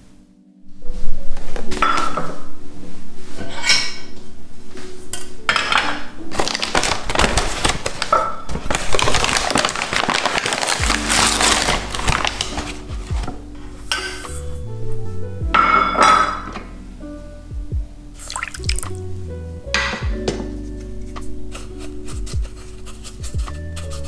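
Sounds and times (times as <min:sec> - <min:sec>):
sugar rustling poured into saucepan: 0:18.2 - 0:19.0.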